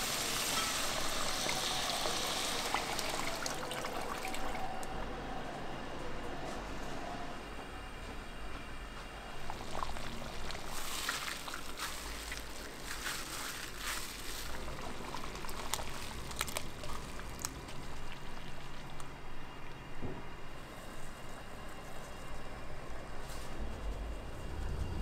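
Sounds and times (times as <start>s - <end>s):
liquid pouring into pot: 0.0s - 4.6s.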